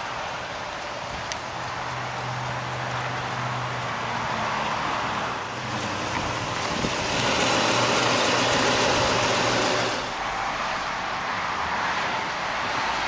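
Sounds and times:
engine hiss: 0.0s - 11.0s
car engine idling: 5.3s - 10.3s.

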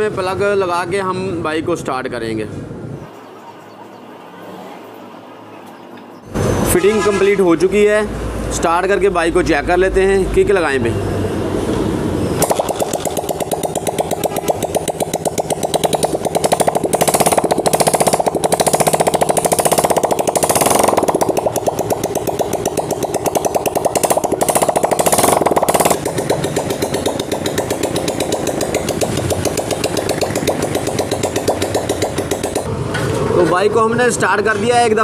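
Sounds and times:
motorcycle engine revving and idling: 12.0s - 32.7s.

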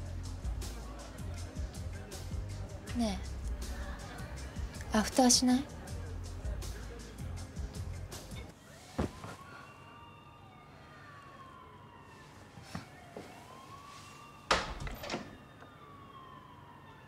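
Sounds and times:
faint siren wailing: 8.5s - 17.0s.

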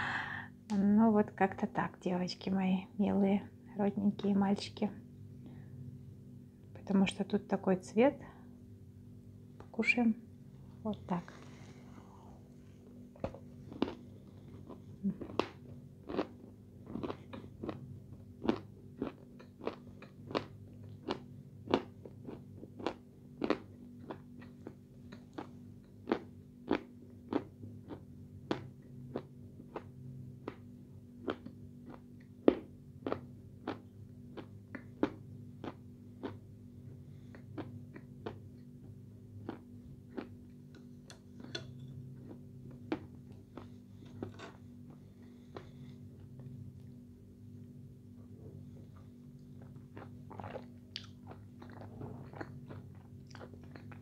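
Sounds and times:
crunchy chewing: 13.2s - 36.5s, 37.3s - 40.6s, 48.8s - 54.0s.

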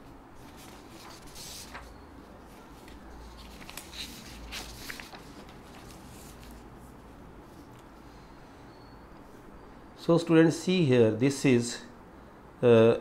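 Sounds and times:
paper rustling and scraping: 0.4s - 7.7s.

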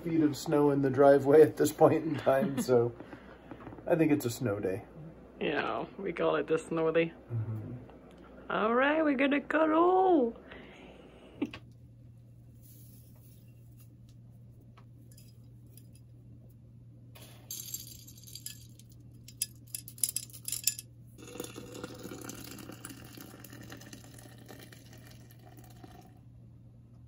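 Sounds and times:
steady low hum: 0.0s - 27.0s
glass clinking: 17.2s - 26.1s.

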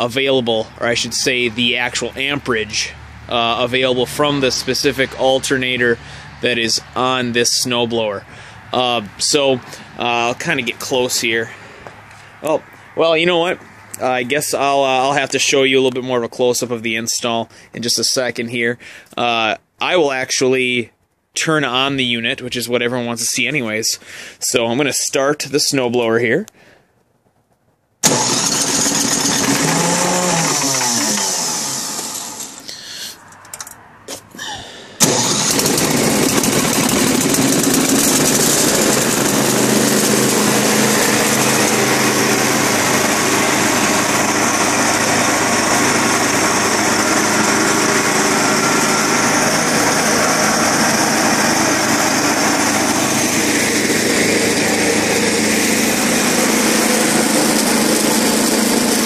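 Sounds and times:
snowblower engine starting and sputtering: 0.0s - 12.5s, 28.0s - 33.1s, 34.4s - 59.0s.

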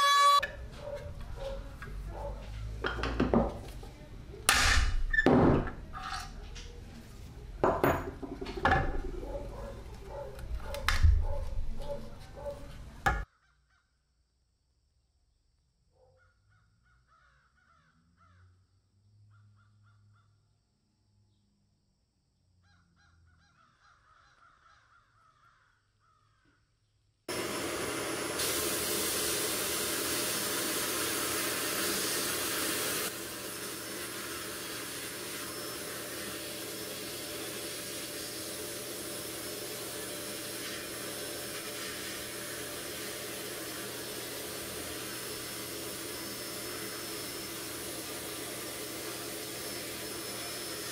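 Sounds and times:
faint bird calls: 16.0s - 18.6s, 22.6s - 26.7s
sandblasting gun hissing: 27.3s - 50.9s.

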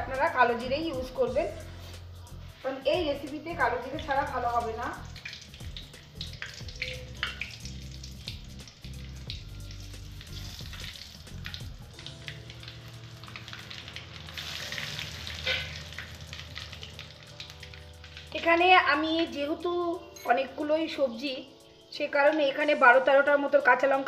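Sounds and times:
spices sizzling in hot oil: 0.0s - 24.0s
small pops of frying spices: 4.0s - 18.8s.

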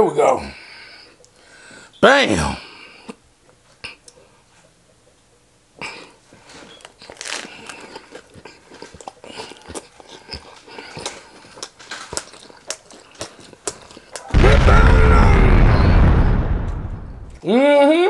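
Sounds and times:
crunchy chewing: 6.0s - 14.3s
lettuce wrap bite crunch: 6.9s - 14.4s.

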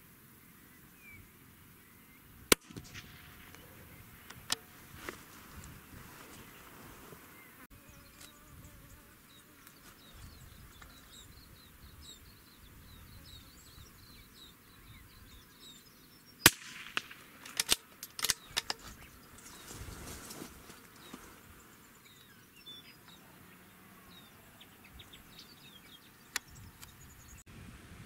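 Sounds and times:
rifle shot: 2.5s - 3.8s, 16.4s - 18.4s
faint bird chirps: 7.3s - 16.5s
rifle bolt clicks: 16.5s - 18.8s.

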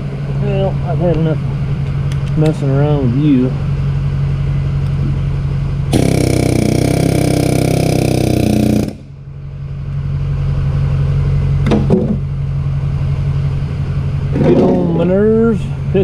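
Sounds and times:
steady machine hum: 0.0s - 16.0s
pneumatic air hammer firing: 5.9s - 9.1s.

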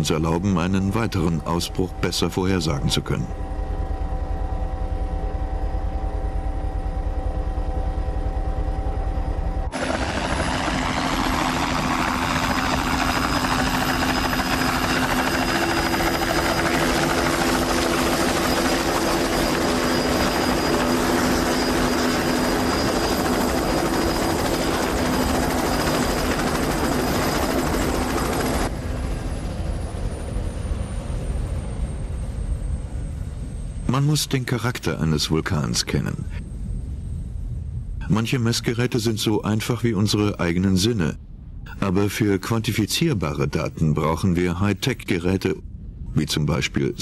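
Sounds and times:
helicopter rotor beat: 0.0s - 36.7s
high turbine whine: 0.0s - 47.0s.

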